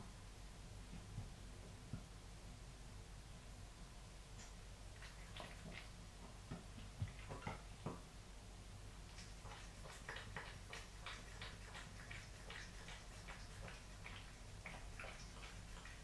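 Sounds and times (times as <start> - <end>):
cat lapping water: 5.0 - 7.9, 9.1 - 16.0.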